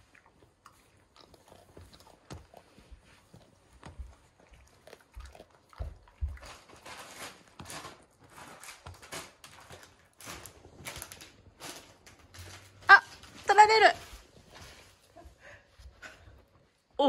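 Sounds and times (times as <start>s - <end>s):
dog chewing a hard treat: 0.0s - 12.8s.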